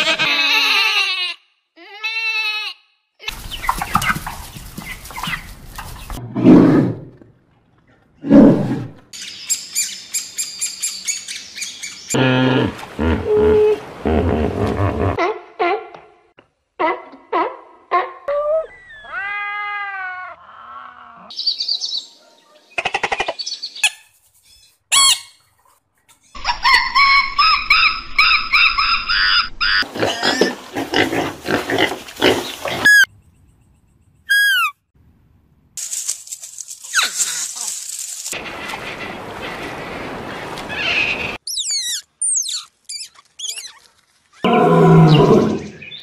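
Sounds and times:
animal cries and squeals: 0.0 - 2.8, 17.4 - 21.3
high falling chirps: 32.9 - 34.8, 41.4 - 43.8.

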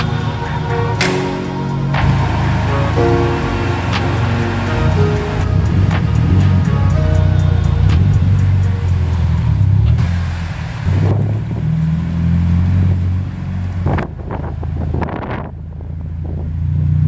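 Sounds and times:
car engine low rumble: 0.0 - 17.0.

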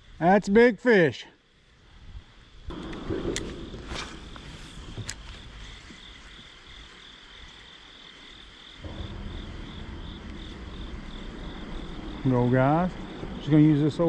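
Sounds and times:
insects chirping: 0.0 - 14.0
low rushing noise: 8.8 - 14.0.

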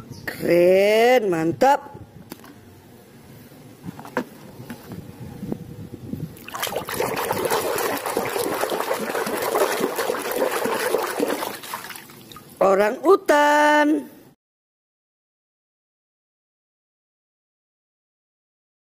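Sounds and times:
water splashing in plastic tub: 6.4 - 12.6.

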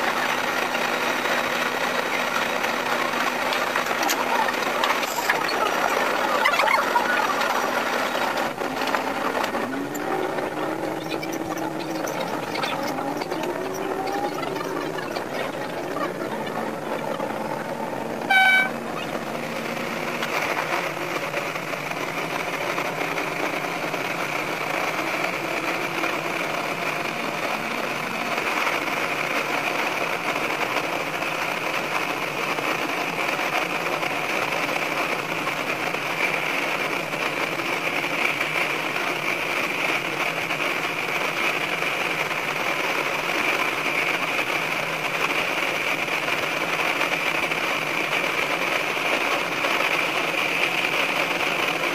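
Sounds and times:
railcar engine and wheels running: 0.0 - 51.9
train horn blast: 18.2 - 19.0.

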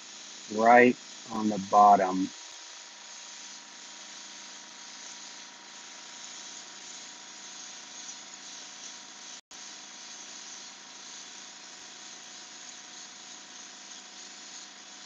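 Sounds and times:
airbrush spraying hiss: 0.0 - 15.0
faint steady hum: 0.5 - 2.3.

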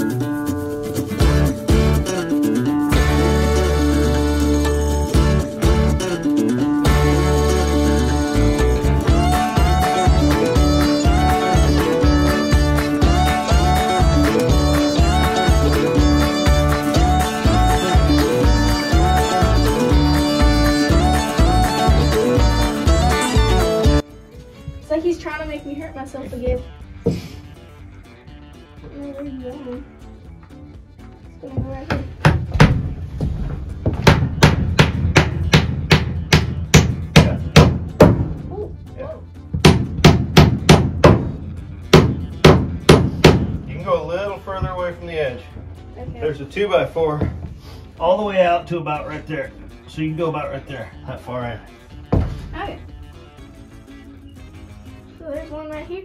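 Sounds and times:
lively instrumental music: 0.0 - 56.0
hammer striking nails into wood: 34.0 - 38.3, 39.6 - 41.4, 42.0 - 43.6.

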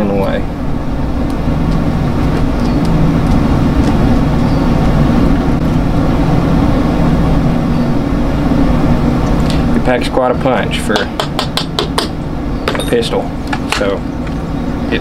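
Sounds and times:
motor droning: 0.0 - 10.0.

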